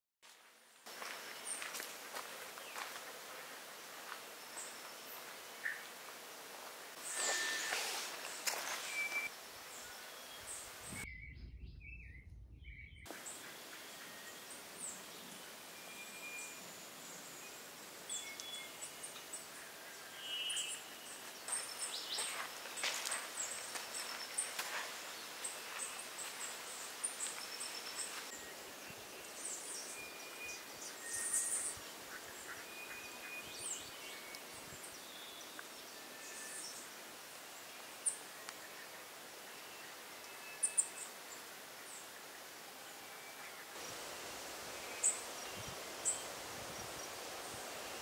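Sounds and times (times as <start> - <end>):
steady background hiss: 0.3 - 11.0, 13.1 - 48.0
birds calling and chirping: 7.0 - 36.9.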